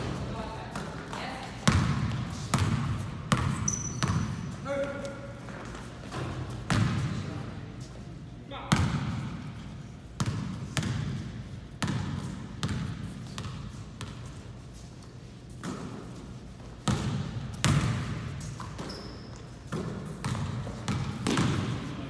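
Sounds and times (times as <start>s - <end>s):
basketball bouncing on gym floor: 0.0s - 5.1s, 6.1s - 7.3s, 8.6s - 9.6s, 10.2s - 14.4s, 16.8s - 22.0s.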